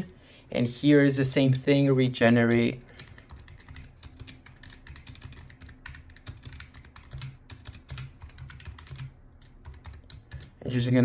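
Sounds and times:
computer keyboard typing: 0:02.4 - 0:10.6.

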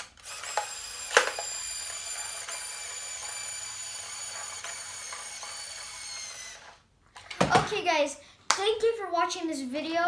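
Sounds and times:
toy mechanism whirring: 0:00.0 - 0:06.9.

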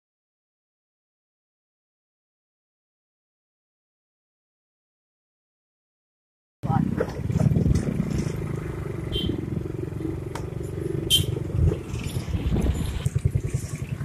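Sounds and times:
motorcycle engine running: 0:06.6 - 0:14.0.

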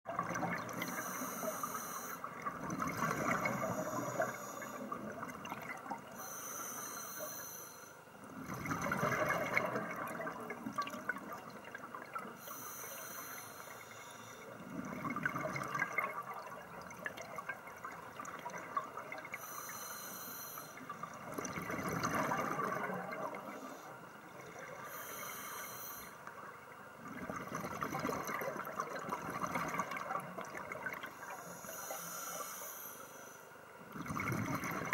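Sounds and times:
exhaled bubbles burbling: 0:00.1 - 0:01.0, 0:02.2 - 0:06.2, 0:08.3 - 0:12.3, 0:14.6 - 0:19.4, 0:20.9 - 0:23.6, 0:27.0 - 0:31.2, 0:33.9 - 0:34.9
regulator inhalation hiss: 0:00.8 - 0:02.3, 0:03.5 - 0:04.9, 0:06.2 - 0:08.0, 0:12.4 - 0:14.5, 0:24.8 - 0:26.2, 0:31.2 - 0:33.5.

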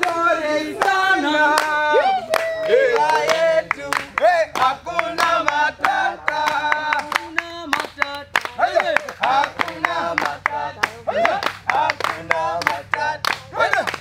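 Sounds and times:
hand claps: 0:00.0 - 0:14.0
men singing call and response: 0:00.0 - 0:14.0.

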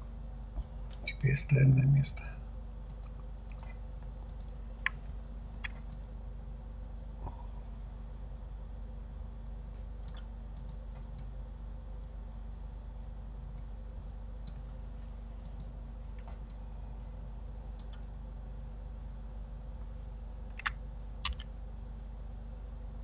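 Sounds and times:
low electrical hum: 0:00.0 - 0:23.0
mouse and keyboard clicks: 0:02.8 - 0:05.0, 0:05.6 - 0:06.0, 0:10.0 - 0:11.3, 0:20.5 - 0:21.5.

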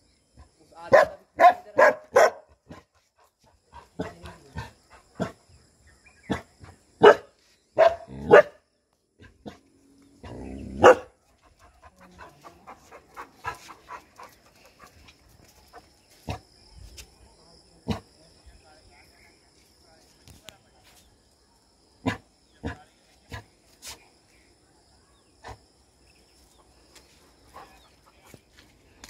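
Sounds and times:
dogs barking: 0:00.9 - 0:02.9, 0:06.3 - 0:08.6, 0:10.2 - 0:15.2.

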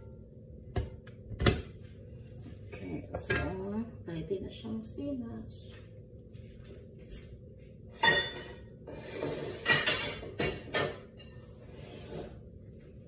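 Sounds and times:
steady low hum: 0:00.0 - 0:13.0
kitchenware clinking: 0:07.9 - 0:11.5.

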